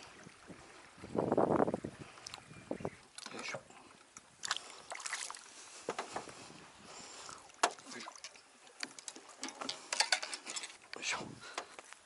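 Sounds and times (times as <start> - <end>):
fish splashing in water: 4.4 - 5.6.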